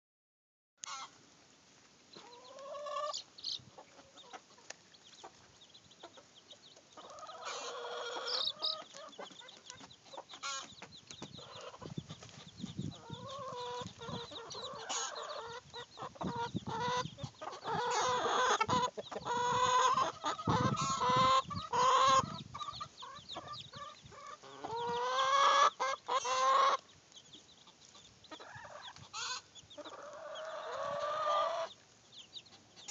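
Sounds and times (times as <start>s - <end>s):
chicken drawn-out calls: 0.8s - 1.2s, 2.1s - 32.9s
chickens clucking: 0.8s - 1.2s, 2.1s - 32.9s.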